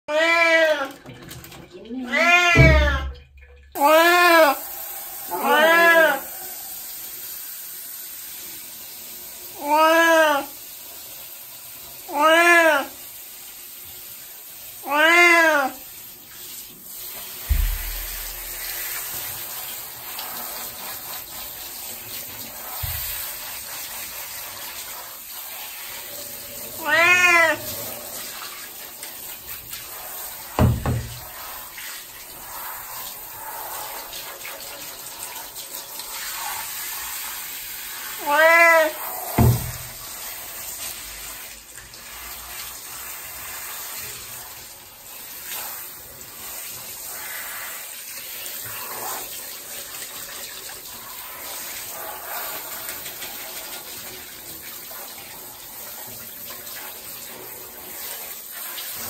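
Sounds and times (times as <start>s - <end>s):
cat meowing: 0.1s - 1.0s, 2.0s - 3.2s, 5.3s - 6.6s, 12.1s - 12.9s, 14.8s - 15.8s, 26.6s - 27.9s, 38.2s - 39.4s
shower head spraying water: 2.2s - 3.2s, 3.8s - 59.0s
dull thumps: 17.5s - 18.8s.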